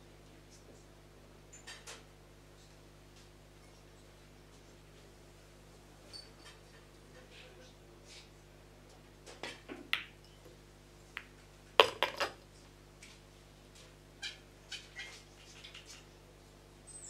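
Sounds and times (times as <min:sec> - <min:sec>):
ball potted knocks: 0:11.8 - 0:12.4
pool balls clacking: 0:11.8 - 0:12.4.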